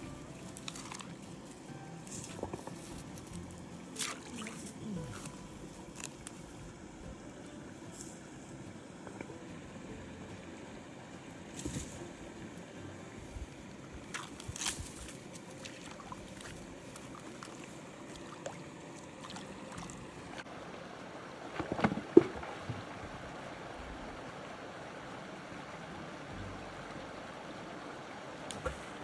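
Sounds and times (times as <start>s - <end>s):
creek water running: 0.0s - 29.0s
hands splashing water: 0.5s - 1.2s, 4.0s - 6.4s, 14.1s - 20.0s.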